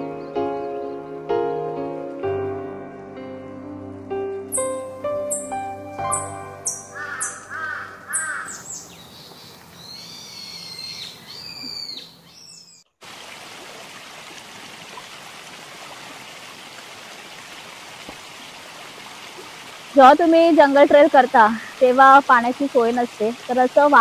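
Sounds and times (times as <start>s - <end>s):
background music: 0.0s - 8.2s
birds chirping and whistling: 4.5s - 12.8s
stream water flowing: 6.1s - 11.8s, 13.0s - 24.0s.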